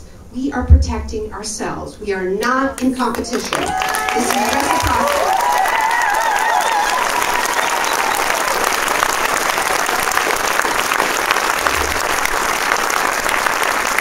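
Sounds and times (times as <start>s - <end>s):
large audience applauding: 3.1s - 14.0s.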